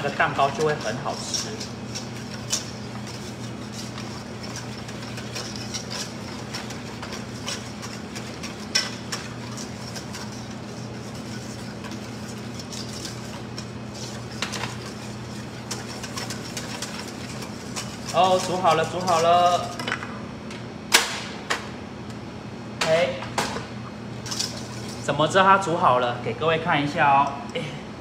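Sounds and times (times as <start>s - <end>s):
whisk scraping metal bowl: 0.0s - 19.9s, 24.2s - 25.8s
steady low hum: 0.0s - 28.0s.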